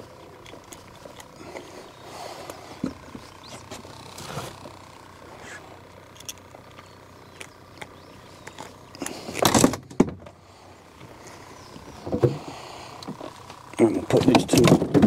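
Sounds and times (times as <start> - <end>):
knocks and clicks in metal boat: 14.2 - 15.0.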